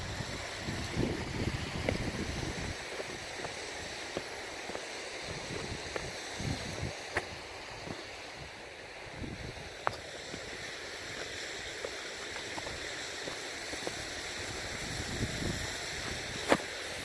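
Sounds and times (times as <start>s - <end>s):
wind rumble on microphone: 0.0s - 3.3s, 5.3s - 10.0s, 14.4s - 16.6s
running water rushing: 0.0s - 17.0s.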